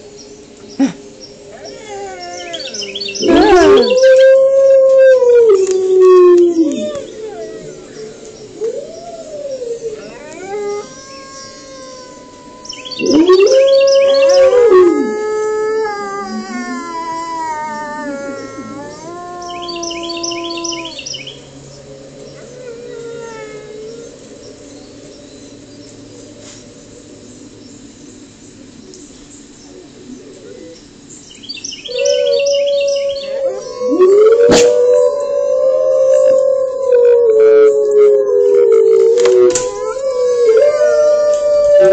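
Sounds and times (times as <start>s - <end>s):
bird chirps: 0.2s - 4.2s, 11.0s - 14.5s, 19.4s - 21.5s, 30.6s - 33.4s
wolves howling: 1.4s - 27.3s, 31.8s - 41.9s
loud deep wolf howl: 1.5s - 27.2s, 31.8s - 41.9s.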